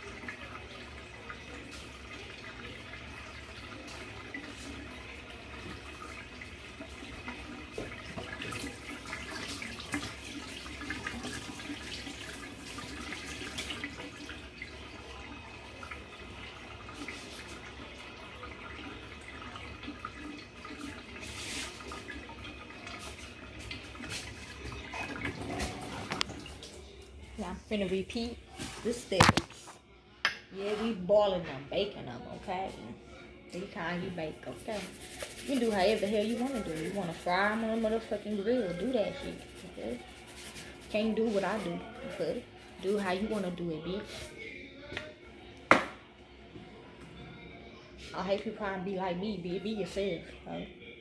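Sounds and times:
water splashes: 34.3s - 43.5s
tap running into metal sink: 45.7s - 46.0s.

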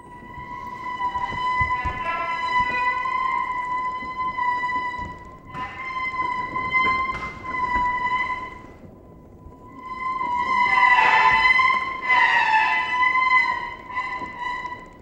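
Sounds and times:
faint wavering tones: 0.0s - 15.0s.

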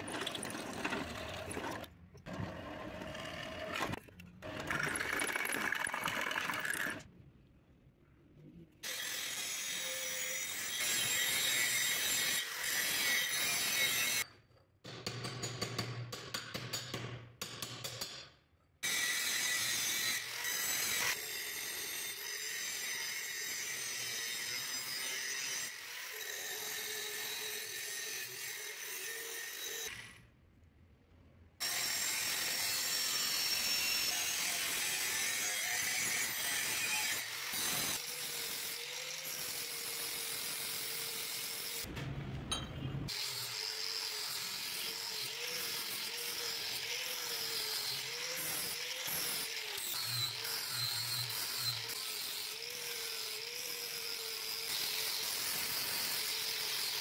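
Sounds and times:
angle grinder grinding steel: 43.1s - 57.0s.

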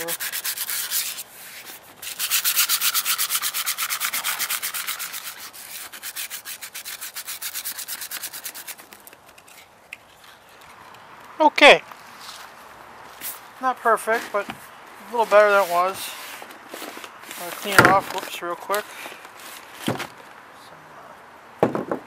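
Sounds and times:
sandpaper rubbing on helmet shell: 0.0s - 9.7s, 14.1s - 19.8s.

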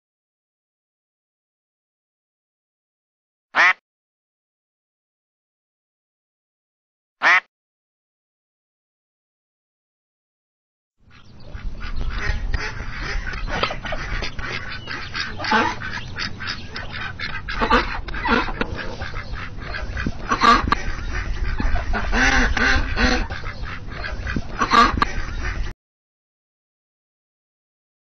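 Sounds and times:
duck quacking: 3.6s - 3.8s, 7.2s - 7.5s, 11.1s - 25.7s
low steady rumble: 11.1s - 25.7s.

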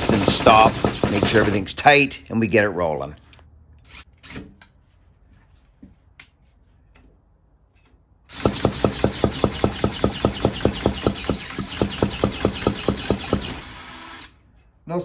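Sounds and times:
engine compression thumps: 0.0s - 1.6s, 8.4s - 13.6s
cordless drill whine: 13.0s - 14.4s.

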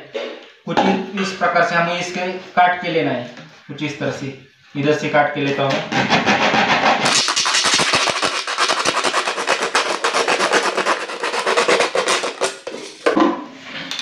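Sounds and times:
blade sawing plastic bottle: 6.0s - 13.0s.

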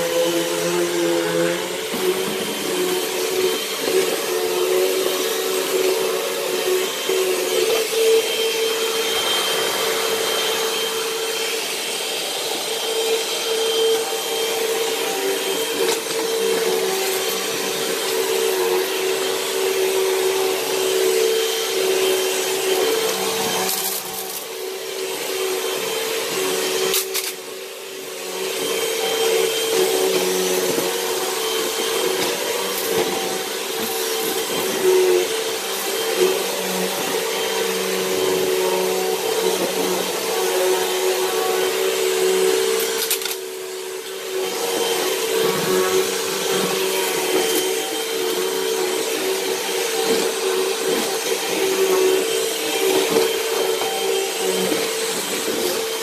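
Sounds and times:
vacuum cleaner motor whine: 0.0s - 56.0s
vacuum suction rush: 1.6s - 16.6s.

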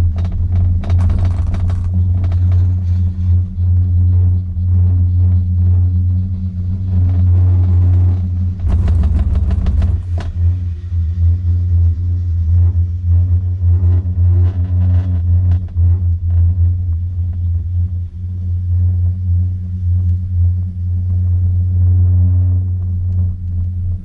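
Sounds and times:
clicks and rattles: 0.0s - 2.9s, 8.6s - 10.4s
chairlift low rumble: 0.0s - 24.0s.

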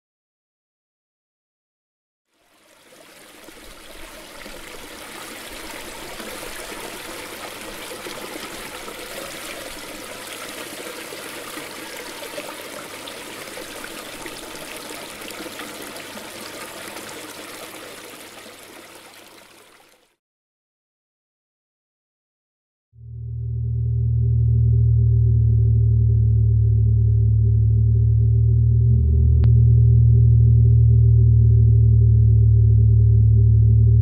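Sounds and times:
running water splashing: 2.3s - 20.2s.

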